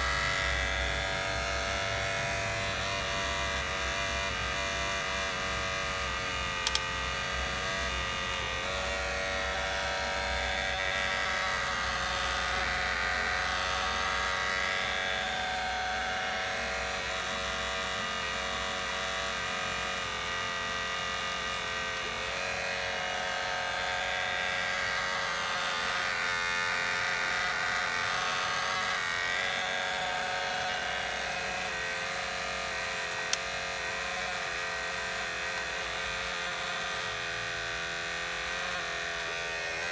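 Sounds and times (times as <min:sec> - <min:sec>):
electric motors whining: 0:00.0 - 0:39.9
short clicks: 0:06.6 - 0:06.9.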